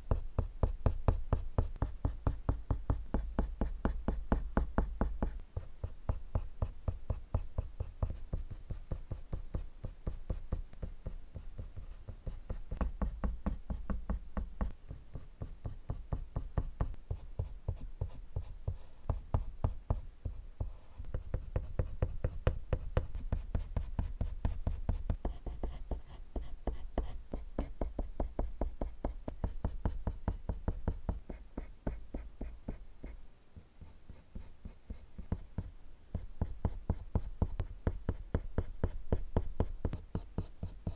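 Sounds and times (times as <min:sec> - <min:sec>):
pencil scratching on paper: 0:00.1 - 0:33.2.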